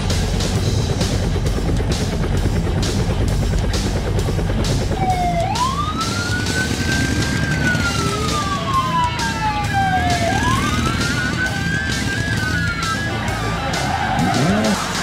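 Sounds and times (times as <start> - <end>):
police siren wailing: 4.8 - 15.0.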